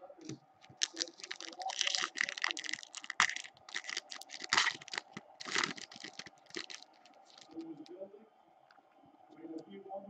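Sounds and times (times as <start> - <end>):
foil wrapper crinkling and tearing: 0.7 - 7.6.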